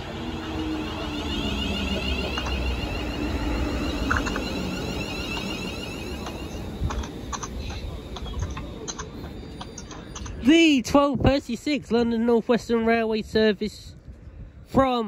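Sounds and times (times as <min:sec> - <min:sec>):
electric train motors whining down: 0:00.0 - 0:09.6
wheels rumbling on rail: 0:00.0 - 0:12.6.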